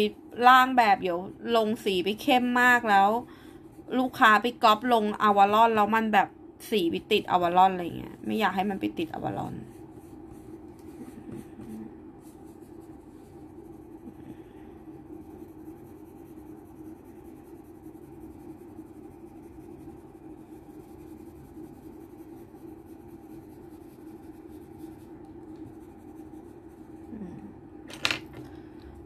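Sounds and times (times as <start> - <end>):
steady low hum: 0.0 - 29.0
pencil scratching on paper: 8.6 - 27.2.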